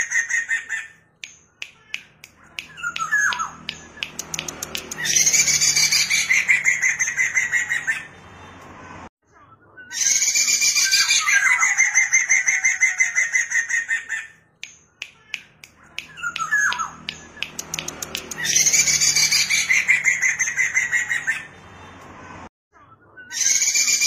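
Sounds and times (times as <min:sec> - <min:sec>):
short clicks: 0:01.2 - 0:05.2.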